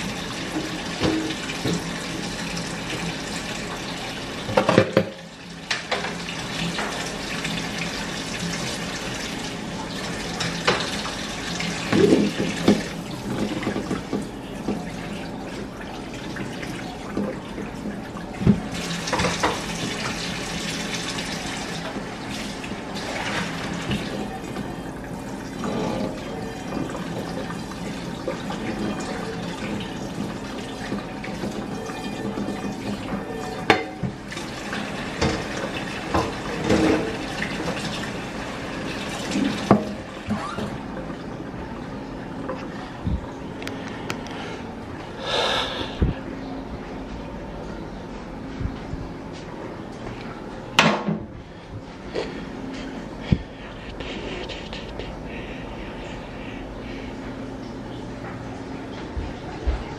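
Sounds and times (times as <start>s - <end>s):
faucet water running into sink: 0.0s - 41.9s
cookware clanking against sink: 0.6s - 1.8s, 31.5s - 34.2s.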